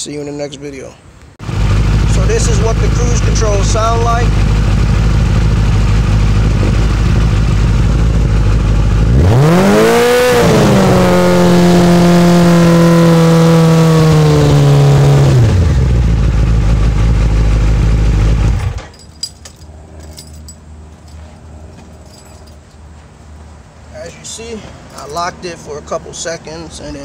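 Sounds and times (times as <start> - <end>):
motorcycle engine idling and revving: 1.4 - 23.7.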